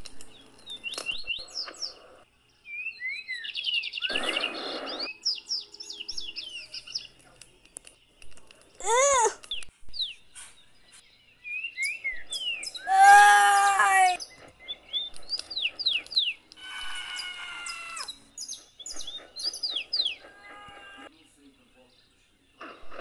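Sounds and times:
birds chirping: 0:00.0 - 0:23.0
cries: 0:08.8 - 0:09.4, 0:12.9 - 0:14.2
loud held yell: 0:12.9 - 0:14.2.

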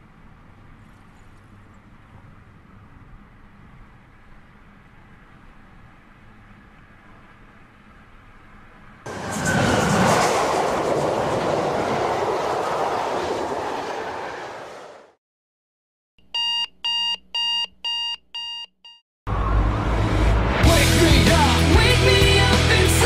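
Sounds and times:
train rushing past: 0:09.1 - 0:15.2
alarm clock beeping: 0:16.3 - 0:19.0.

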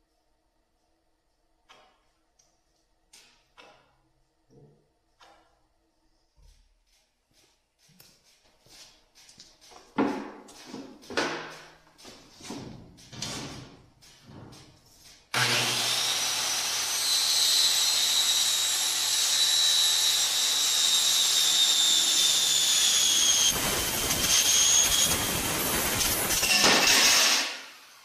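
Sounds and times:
power tool cutting aluminum: 0:15.3 - 0:28.0.

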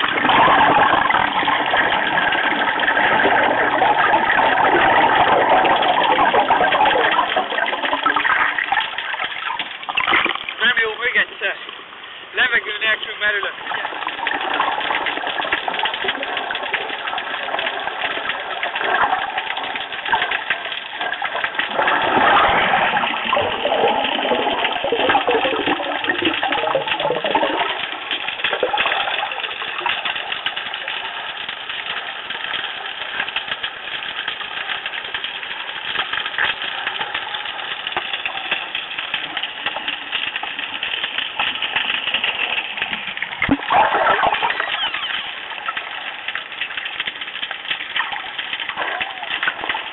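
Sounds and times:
muffled underwater rush: 0:00.0 - 0:49.9
swirl of moving water: 0:00.0 - 0:49.9
small crackling clicks: 0:12.4 - 0:49.9.

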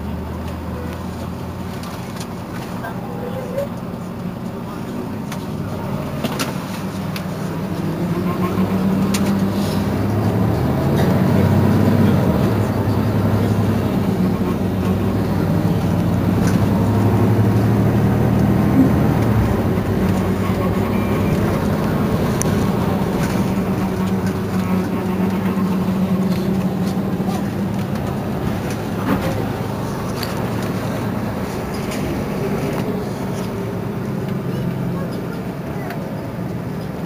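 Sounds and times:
bus engine idling: 0:00.0 - 0:37.0.

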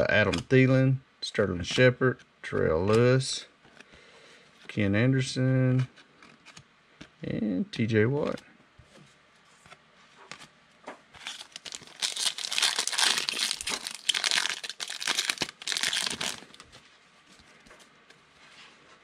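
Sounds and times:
plastic wrapper tearing and crinkling: 0:11.2 - 0:16.7.

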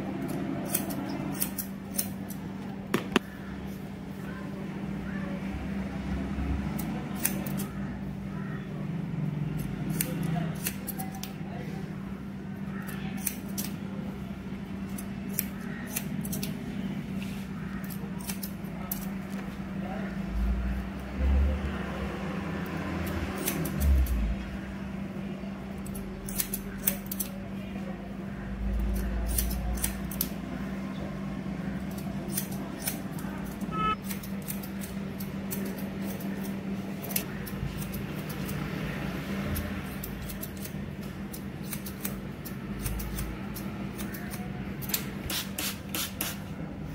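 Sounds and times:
scissors snipping hair: 0:00.2 - 0:02.4, 0:06.7 - 0:07.8, 0:09.6 - 0:11.4, 0:12.8 - 0:13.8, 0:14.9 - 0:16.6, 0:17.7 - 0:19.3, 0:22.6 - 0:24.3, 0:25.8 - 0:27.4, 0:28.7 - 0:30.4, 0:31.8 - 0:38.7, 0:39.4 - 0:46.4.

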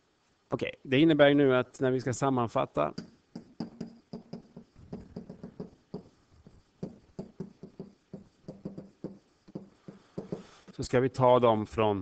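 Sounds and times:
stylus tapping and scraping: 0:02.9 - 0:10.7.

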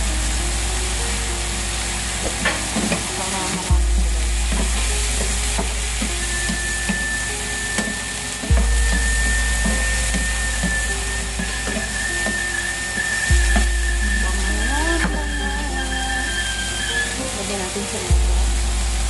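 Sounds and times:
shrimp sizzling in a pan: 0:00.0 - 0:19.0
utensil scraping a pan: 0:02.5 - 0:17.2.

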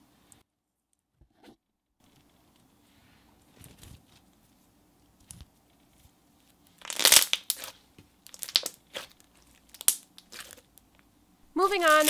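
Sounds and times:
slime squishing and popping: 0:06.8 - 0:10.7.

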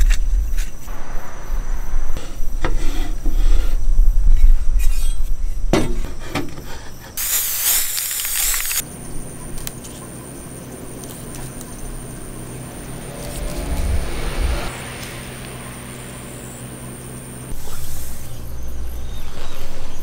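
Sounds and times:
low rumble: 0:00.0 - 0:05.7, 0:11.8 - 0:17.6
dense hiss: 0:07.2 - 0:08.8.

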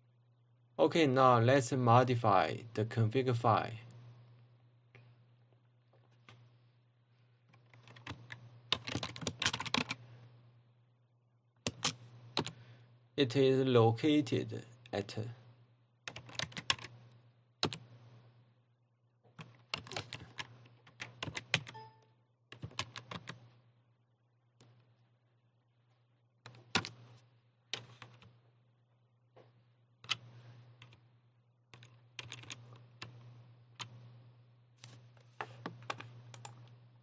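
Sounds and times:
faint low hum: 0:00.0 - 0:37.0
keyboard typing: 0:07.5 - 0:10.0, 0:11.6 - 0:12.6, 0:16.1 - 0:17.0, 0:17.6 - 0:17.9, 0:19.4 - 0:23.4, 0:26.4 - 0:27.1, 0:27.7 - 0:28.3, 0:31.7 - 0:33.1.

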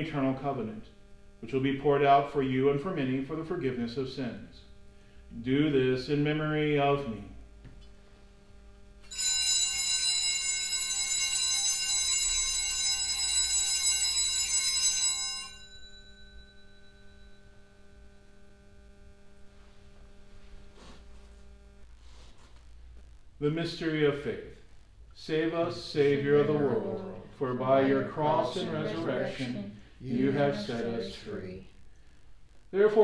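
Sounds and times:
altar bells ringing: 0:09.1 - 0:17.3.

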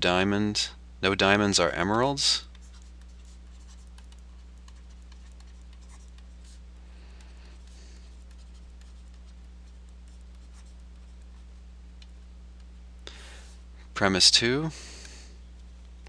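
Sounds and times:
low electrical hum: 0:00.0 - 0:16.0
scratching of writing: 0:02.4 - 0:11.6.

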